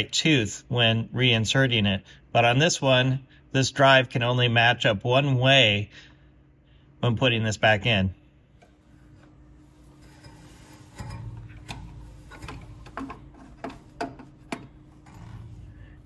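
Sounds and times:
metal rubbing scrapes: 8.6s - 16.0s.

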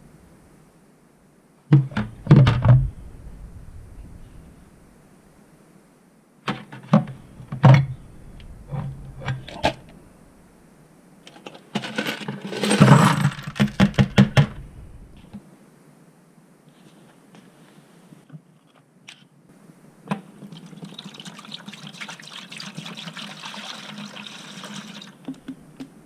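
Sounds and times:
metal parts clinking into bucket: 11.3s - 14.0s.

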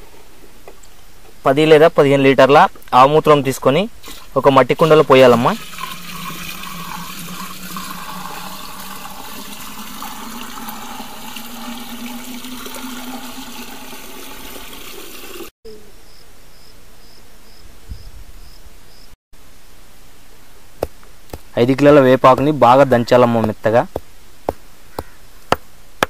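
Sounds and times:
liquid pouring into clay pot: 4.0s - 15.5s.

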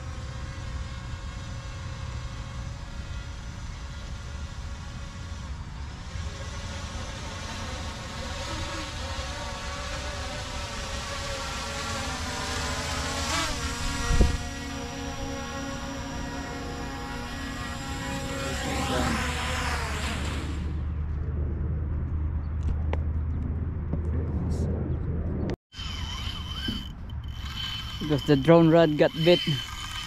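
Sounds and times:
drone propellers whining: 0.0s - 30.0s
wind on microphone: 13.6s - 15.6s.

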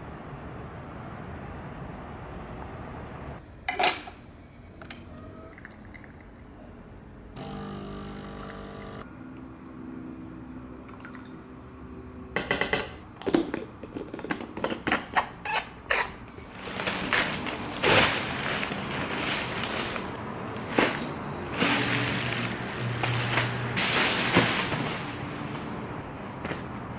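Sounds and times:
plastic bag crinkling and tearing: 16.4s - 25.8s.

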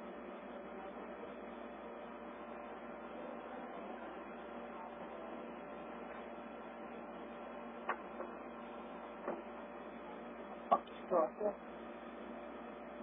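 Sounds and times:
faint hum: 0.0s - 13.0s
radio static hiss: 10.6s - 11.8s.

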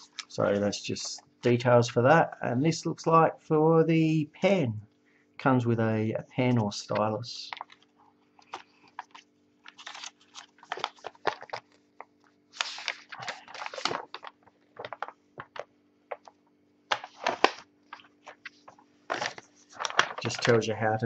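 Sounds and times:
paper crinkling and rustling: 6.9s - 21.0s.

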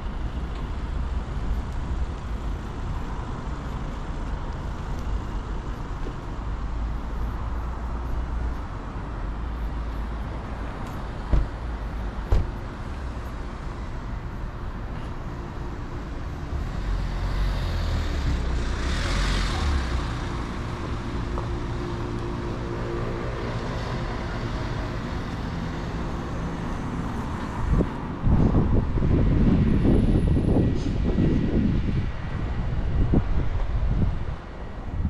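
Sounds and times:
road traffic rumble: 0.0s - 35.0s
vehicle passing: 16.5s - 29.3s.

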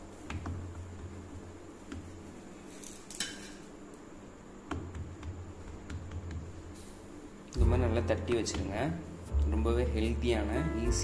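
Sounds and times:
hands patting dough: 0.0s - 2.5s, 4.6s - 6.9s.

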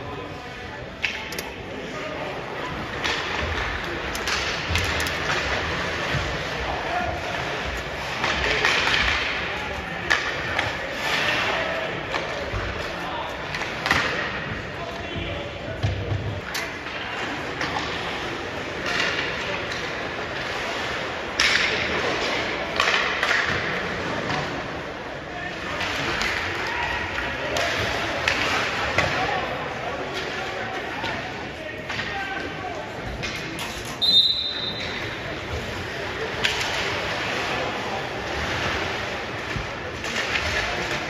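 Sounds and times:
hockey stick striking puck: 2.9s - 6.6s, 7.6s - 11.5s, 13.5s - 14.6s, 21.3s - 24.6s, 36.3s - 41.0s.

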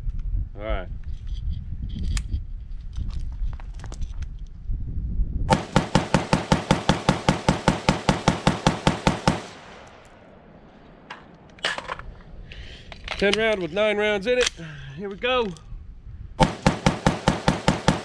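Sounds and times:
rifle firing rapidly: 5.5s - 10.0s, 16.4s - 18.0s.

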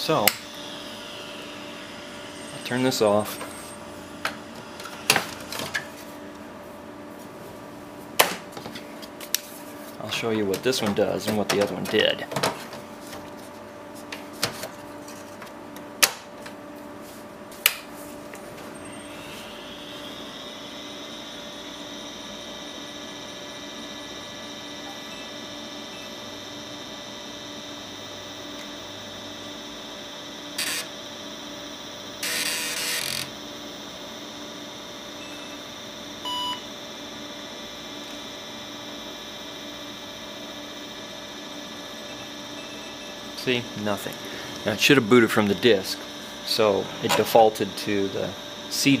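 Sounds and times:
computer whine and hum: 0.0s - 49.0s
disk drive rasp: 30.6s - 30.9s
short computer beep: 36.3s - 36.6s.

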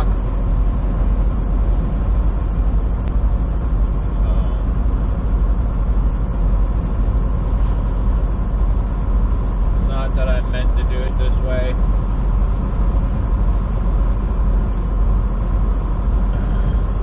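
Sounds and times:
diesel engine drone: 0.0s - 17.0s
tyres on road: 0.0s - 17.0s.

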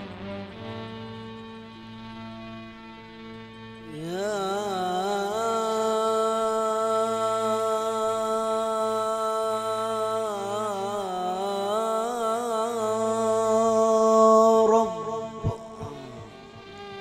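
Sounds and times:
instrumental drone: 0.0s - 17.0s
man chanting: 3.8s - 17.0s.

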